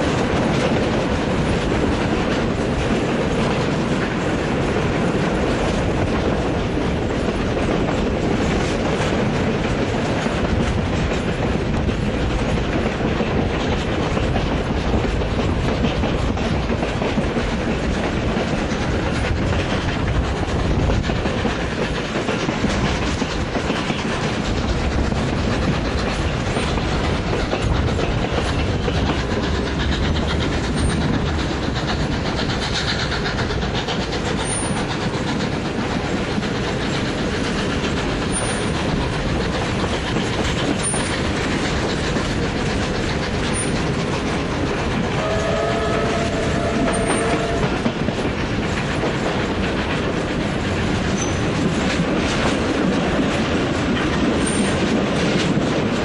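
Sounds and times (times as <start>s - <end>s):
train wheels clattering on rails: 0.0s - 56.0s
steam whistle: 45.2s - 47.8s.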